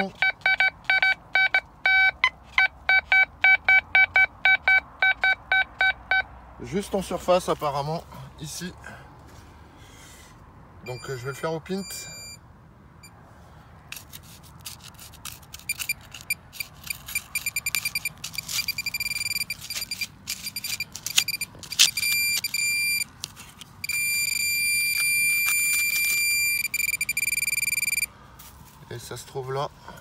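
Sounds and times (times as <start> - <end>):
metal detector beeping: 0.0 - 6.3, 10.8 - 12.4, 14.0 - 28.1
probe scraping dry earth: 13.9 - 28.0.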